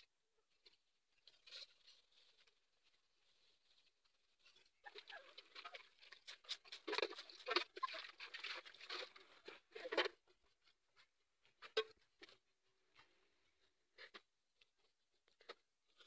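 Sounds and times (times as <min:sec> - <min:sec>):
hands scrubbing cooking pot: 0:03.2 - 0:10.0.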